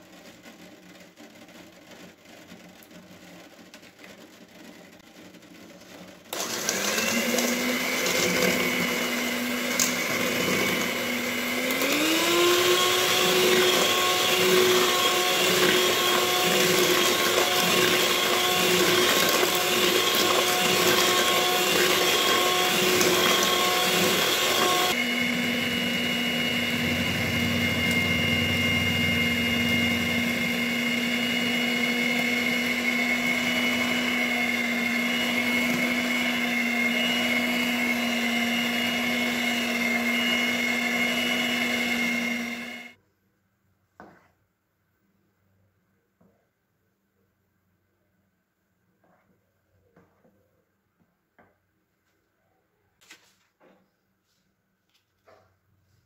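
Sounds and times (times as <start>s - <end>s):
electric hand mixer whining: 5.2s - 43.0s.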